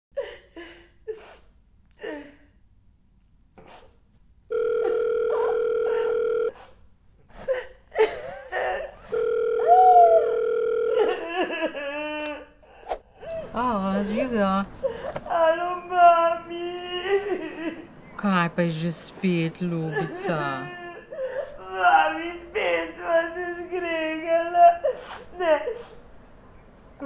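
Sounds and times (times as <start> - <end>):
woman sobbing and sniffling: 0.2 - 2.6, 5.3 - 9.3, 24.6 - 26.1
telephone ringback tone: 4.5 - 6.6, 9.1 - 11.2
woman wailing cry: 4.8 - 6.5, 9.6 - 12.5, 19.8 - 25.9.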